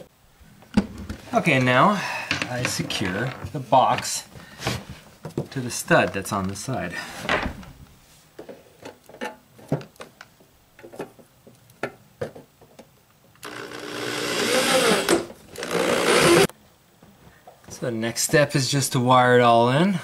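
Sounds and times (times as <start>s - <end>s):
cordless drill driving a screw: 13.4s - 16.5s.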